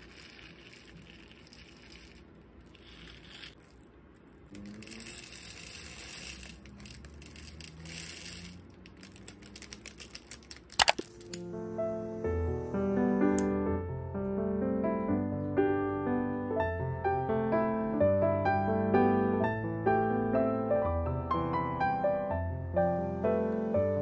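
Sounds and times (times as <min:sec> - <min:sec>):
beads rattling: 0:00.0 - 0:11.4
plastic bag crinkling: 0:00.0 - 0:11.4.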